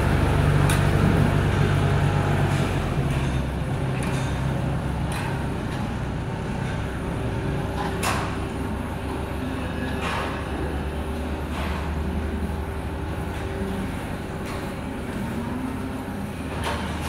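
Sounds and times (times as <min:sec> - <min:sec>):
tractor diesel engine idling: 0:00.0 - 0:16.6.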